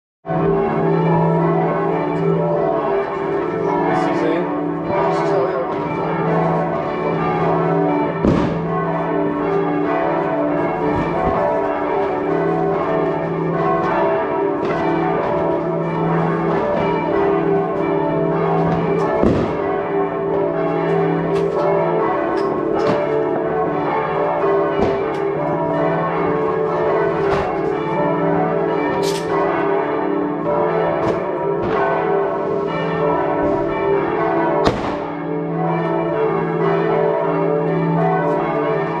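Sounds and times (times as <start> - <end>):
church bells pealing: 0.3 - 39.0
firework bangs: 8.2 - 8.7, 18.7 - 19.7, 24.8 - 25.2, 34.6 - 35.1.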